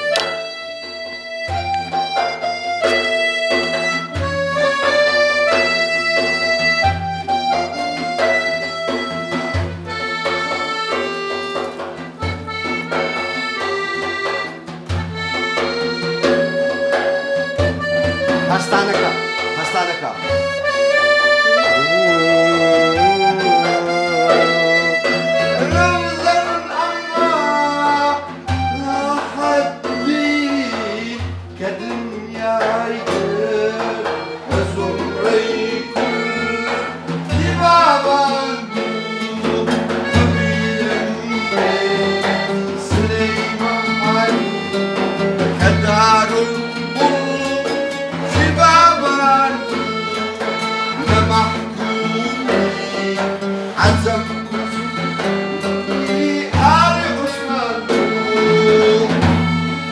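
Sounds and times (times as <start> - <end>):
accordion: 0.0 - 59.9
acoustic guitar: 0.0 - 59.9
man singing: 21.6 - 59.9.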